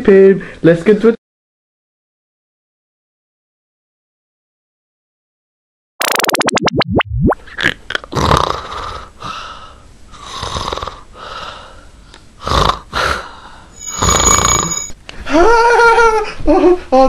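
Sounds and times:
man snoring loudly: 0:08.1 - 0:09.1, 0:10.2 - 0:11.1, 0:12.4 - 0:13.2, 0:13.8 - 0:14.9.

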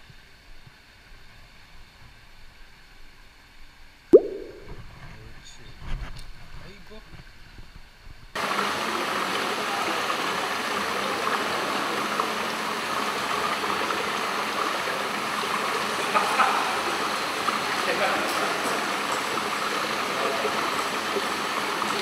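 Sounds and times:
running water rushing: 0:04.2 - 0:04.7.

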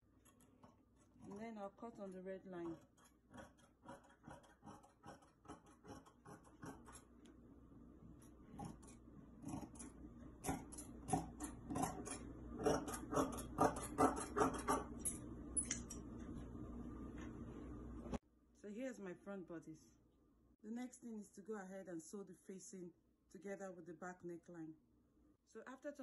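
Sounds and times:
scissors snipping fabric: 0:02.6 - 0:07.1, 0:08.6 - 0:14.9.

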